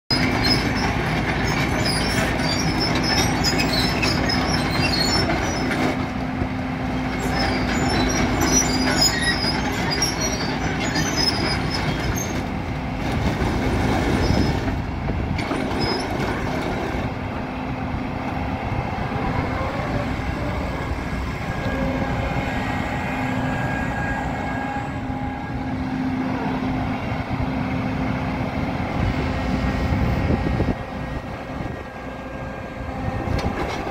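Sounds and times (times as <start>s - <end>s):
track chains squeaking and clinking: 0.1s - 6.0s, 6.9s - 12.6s, 13.3s - 14.8s, 15.4s - 17.1s
excavator diesel and hydraulic drone: 0.1s - 33.9s.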